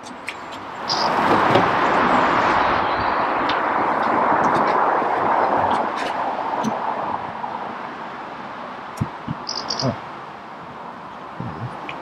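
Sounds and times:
vehicle passing: 0:00.6 - 0:07.7.

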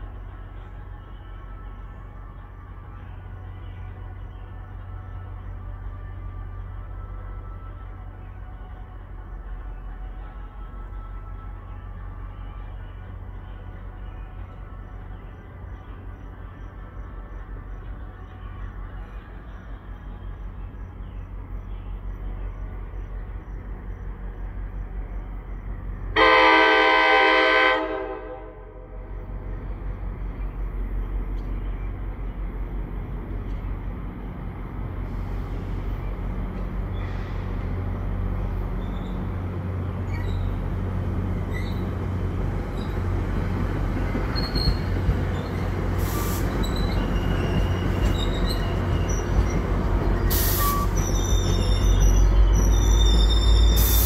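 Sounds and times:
train rumble: 0:00.0 - 0:54.0
train horn blast: 0:26.2 - 0:29.1
wheel squeals: 0:38.7 - 0:39.4, 0:40.0 - 0:40.8, 0:41.4 - 0:43.2, 0:44.0 - 0:54.0.

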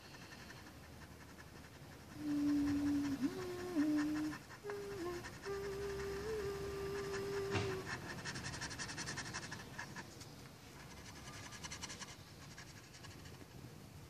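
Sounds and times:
pencil scratching on paper: 0:00.0 - 0:13.5
steady hum-like tone: 0:00.0 - 0:14.0
knock: 0:07.5 - 0:07.8.

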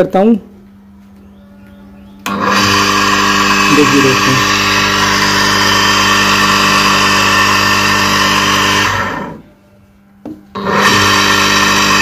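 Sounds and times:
water pump motor hum: 0:02.0 - 0:09.4, 0:10.5 - 0:12.0.

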